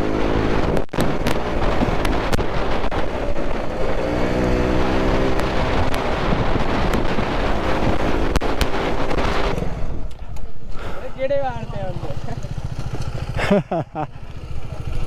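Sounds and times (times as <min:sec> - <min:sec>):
wind rushing over microphone: 0:00.0 - 0:10.7
motorcycle engine running: 0:00.0 - 0:15.0.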